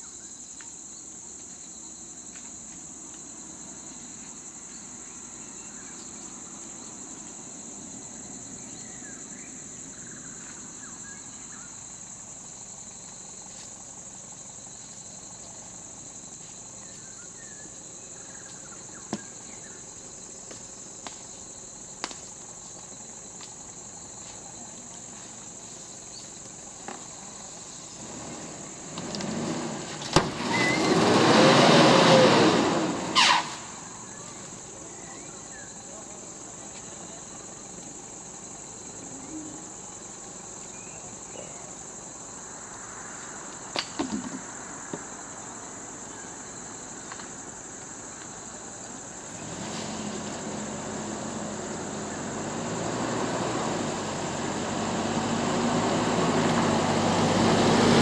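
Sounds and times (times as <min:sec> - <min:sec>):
insect chorus: 0:00.0 - 0:58.0
vehicle engine: 0:23.7 - 0:35.0, 0:48.6 - 0:58.0.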